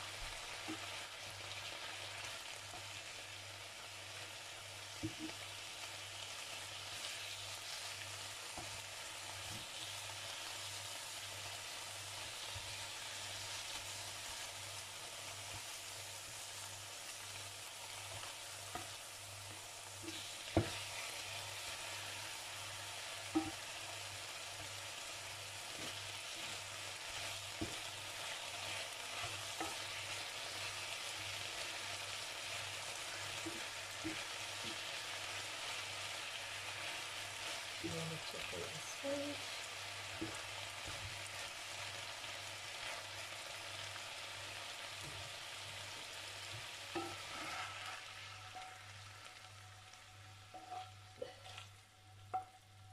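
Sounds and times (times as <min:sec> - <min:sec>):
chicken sizzling in oil: 0:00.0 - 0:52.9
wooden spatula stirring: 0:17.9 - 0:38.5, 0:46.4 - 0:49.4, 0:50.4 - 0:52.7
spatula knocking on pan: 0:20.1 - 0:21.0, 0:23.2 - 0:23.7, 0:27.5 - 0:28.0, 0:46.9 - 0:47.3.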